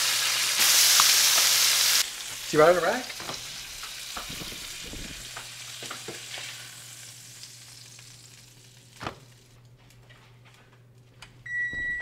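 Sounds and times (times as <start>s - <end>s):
fish sizzling in a pan: 0.0s - 9.5s.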